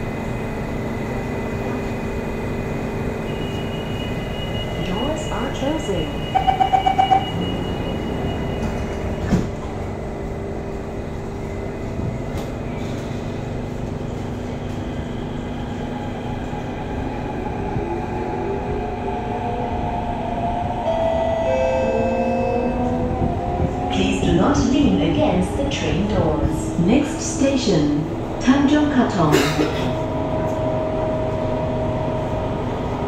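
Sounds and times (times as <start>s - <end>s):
train rumbling: 0.0s - 33.0s
train doors shutting thud: 8.5s - 9.7s.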